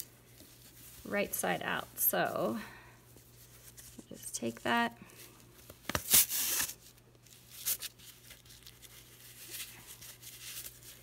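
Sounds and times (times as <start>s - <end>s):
sock fabric rustling: 0.0s - 4.7s.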